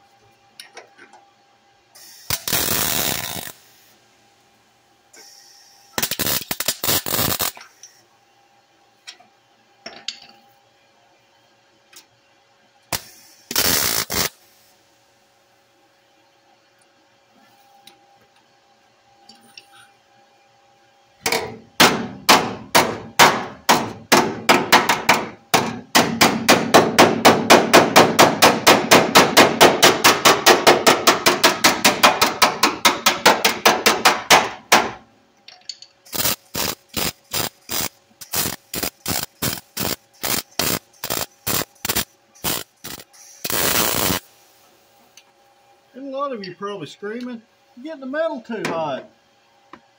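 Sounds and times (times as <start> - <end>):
mig welding bursts: 2.0 - 3.9, 5.2 - 7.8, 12.9 - 14.7, 36.0 - 44.6
hammer tapping on sheet steel: 21.8 - 35.0.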